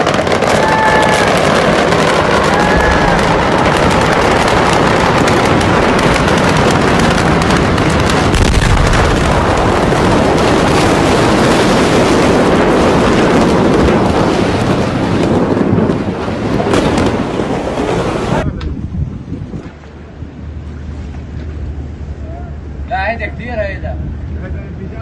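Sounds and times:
fireworks crackling and popping: 0.0 - 18.8
deep bang: 0.4 - 11.0.

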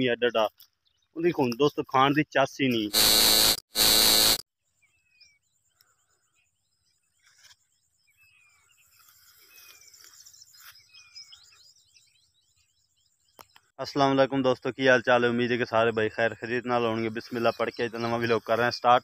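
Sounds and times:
static glitch noise: 2.9 - 4.4
birds whistling: 8.1 - 13.6.

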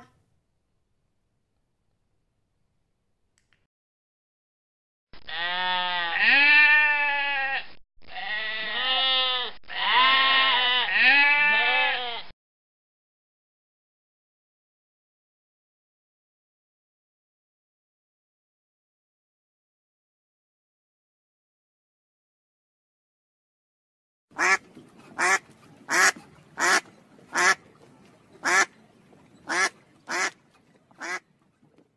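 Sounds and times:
goat bleating: 5.2 - 12.3
duck quacking: 24.3 - 27.6, 28.4 - 28.7, 29.4 - 30.4, 31.0 - 31.2.

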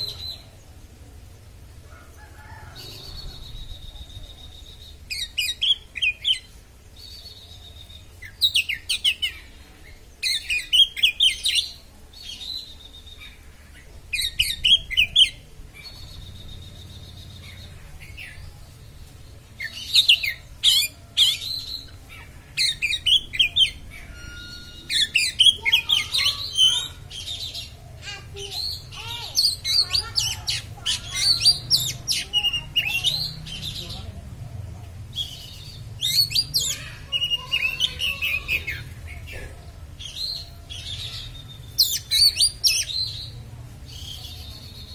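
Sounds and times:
magpie-robin singing rapid high notes: 22.6 - 27.1.

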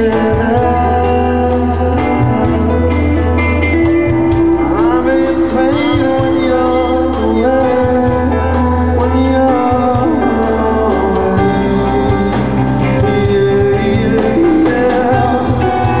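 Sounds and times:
bass line: 0.0 - 16.0
drums with cymbal beat: 0.0 - 16.0
electric guitar: 0.0 - 16.0
man singing: 0.0 - 16.0.

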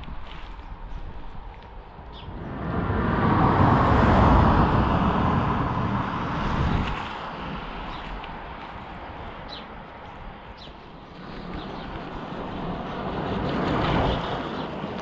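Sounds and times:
car driving past: 2.2 - 8.0.

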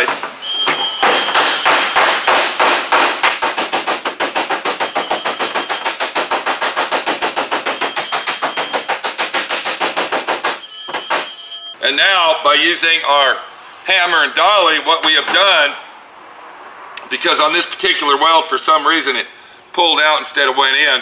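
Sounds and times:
hammer striking steel panel: 0.0 - 11.4.

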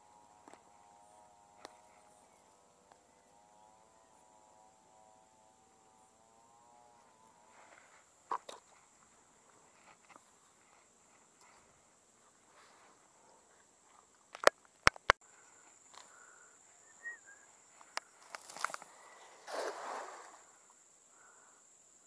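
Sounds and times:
faint wavering drone: 0.0 - 14.2
soft clicks of net handling: 17.8 - 19.0.

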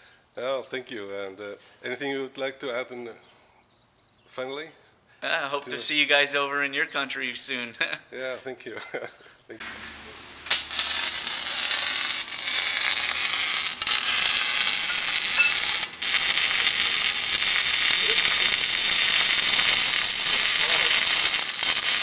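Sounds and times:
arc welding crackling sizzle: 9.6 - 22.0.

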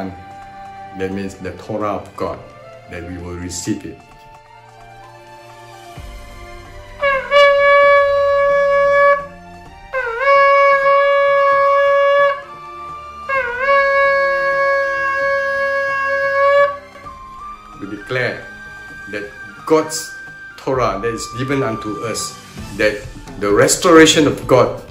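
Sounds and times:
shofar blasts: 6.4 - 24.2.

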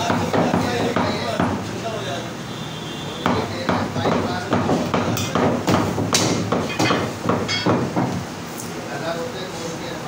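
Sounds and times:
cleaver chopping meat on wood: 0.0 - 1.6, 3.2 - 8.2.

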